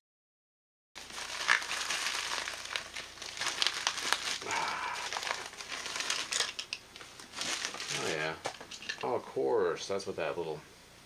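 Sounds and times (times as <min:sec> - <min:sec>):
packing wrap crumpled by hand: 0:01.0 - 0:09.0.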